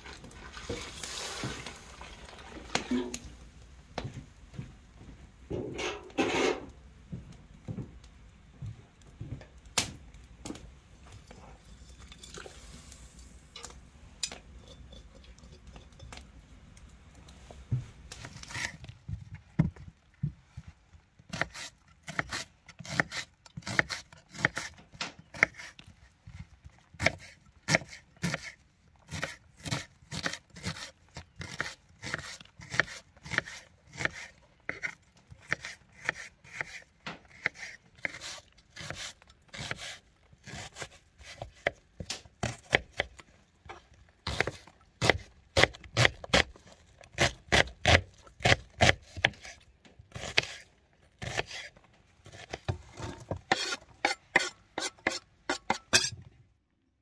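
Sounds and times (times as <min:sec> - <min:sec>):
knife chopping onion on wooden board: 0:21.3 - 0:25.7, 0:27.0 - 0:43.2, 0:44.2 - 0:46.5, 0:47.2 - 0:50.6, 0:51.2 - 0:56.1.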